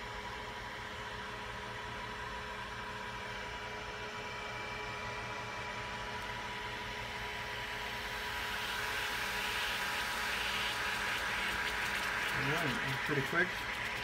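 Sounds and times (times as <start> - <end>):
induction heater hum and whine: 0.0 - 14.0
hiss of water bubbles forming: 7.8 - 14.0.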